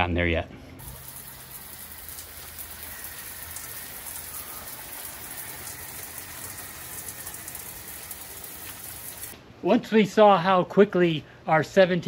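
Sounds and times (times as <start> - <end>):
falling water hiss and patter: 0.8 - 9.4.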